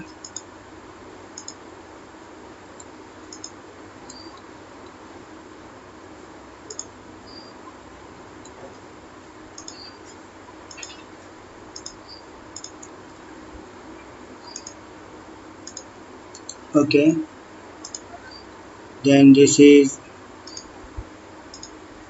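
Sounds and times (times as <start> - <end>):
computer mouse clicks: 0.0 - 0.5, 1.4 - 1.6, 2.8 - 5.0, 6.7 - 7.5, 9.6 - 10.0, 10.7 - 11.0, 11.8 - 12.9, 14.4 - 14.8, 15.6 - 16.6, 17.8 - 18.1, 20.5 - 20.7, 21.5 - 21.8
faint steady hum: 0.0 - 22.0.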